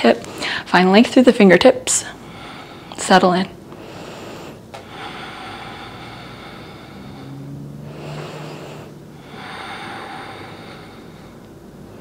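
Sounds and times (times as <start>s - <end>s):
slow deep breathing: 2.1s - 3.0s, 3.6s - 12.0s.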